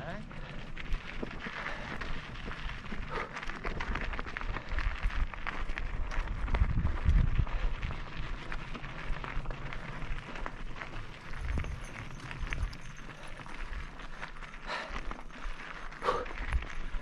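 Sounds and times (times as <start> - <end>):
bike tyres crunching: 0.0 - 17.0
wind buffeting microphone: 0.0 - 17.0
bike parts rattling: 8.3 - 17.0.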